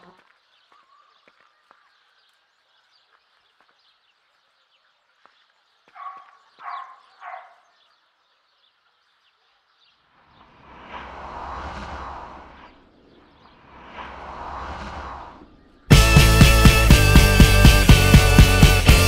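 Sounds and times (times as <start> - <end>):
dog barking: 5.9 - 7.8
rising whoosh: 10.4 - 16.0.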